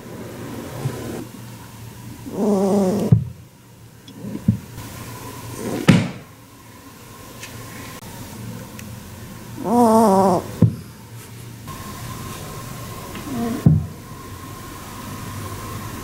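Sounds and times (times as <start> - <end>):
rabbit angry grunt: 2.2 - 3.2, 9.6 - 10.7, 13.2 - 13.8.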